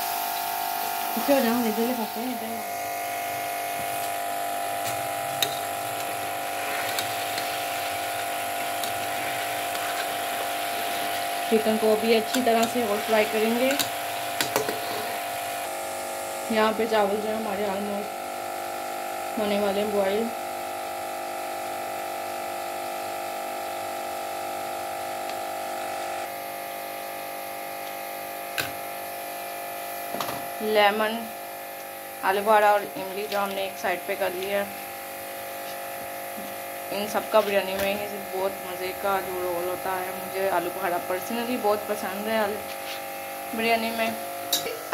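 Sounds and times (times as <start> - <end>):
steady buzzing hum: 0.0 - 44.9
metal spatula clicking on pot: 13.7 - 14.8.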